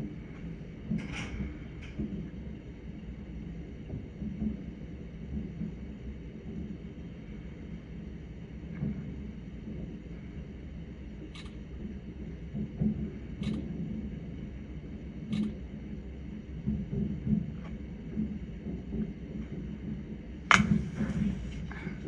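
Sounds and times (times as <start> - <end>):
low thudding fireworks booms: 20.5 - 22.0.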